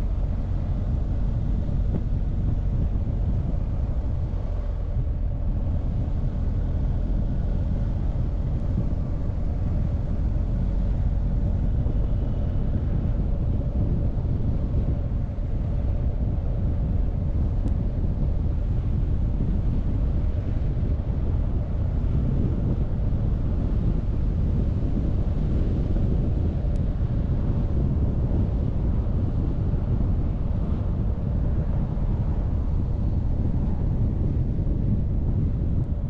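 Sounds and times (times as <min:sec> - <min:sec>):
motorcycle engine drone: 0:00.0 - 0:36.0
wind buffeting microphone: 0:00.0 - 0:36.0.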